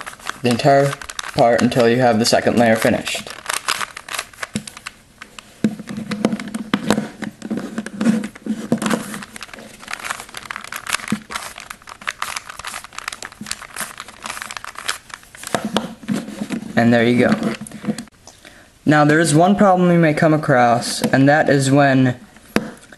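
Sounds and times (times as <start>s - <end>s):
puzzle cube clicking and rattling: 0.0s - 16.5s.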